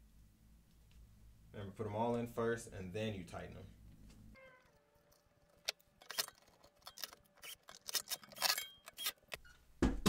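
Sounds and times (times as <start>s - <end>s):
cordless drill handled on metal: 5.4s - 9.4s
metallic clicks of screws: 5.5s - 9.4s.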